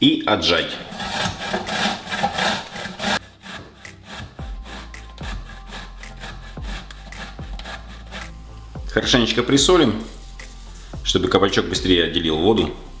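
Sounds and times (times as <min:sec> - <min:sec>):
background music: 0:00.0 - 0:13.0
zucchini rasping on a grater: 0:00.7 - 0:10.4.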